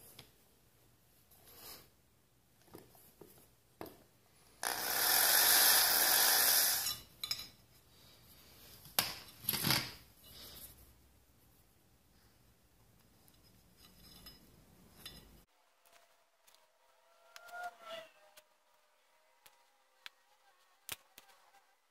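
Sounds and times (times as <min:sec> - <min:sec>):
power tool running: 0:04.6 - 0:06.9.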